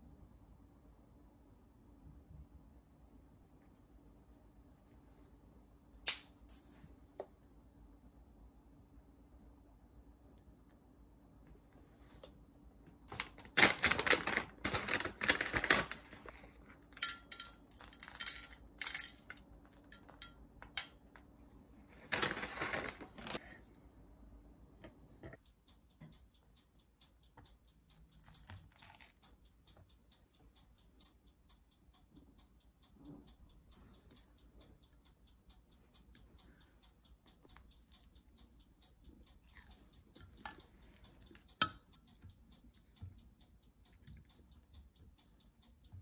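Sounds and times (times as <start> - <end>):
packaging crinkling: 13.1 - 16.4, 22.0 - 23.4
faint ticking: 23.2 - 46.0.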